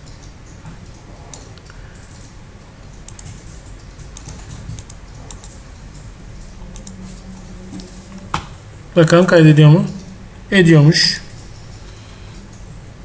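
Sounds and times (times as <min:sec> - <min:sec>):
computer keyboard typing: 0:00.0 - 0:07.2
low steady hum: 0:00.0 - 0:13.0.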